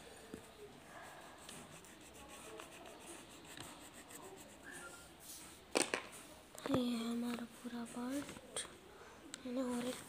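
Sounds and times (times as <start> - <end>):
pencil scratching on paper: 0.9 - 5.4.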